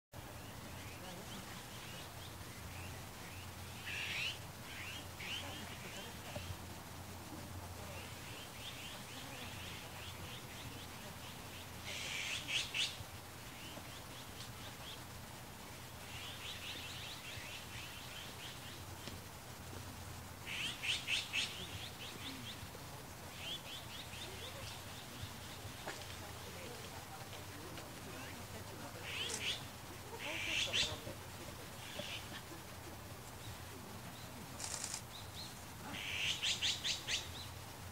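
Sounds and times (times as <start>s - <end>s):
magpies soft chattering: 29.0s - 32.9s
magpies harsh rattling calls: 36.0s - 37.3s.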